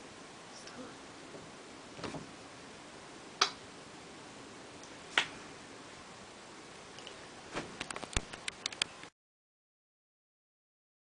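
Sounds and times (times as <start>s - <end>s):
sharp snaps: 3.4s - 3.6s, 4.8s - 5.4s, 7.8s - 9.1s.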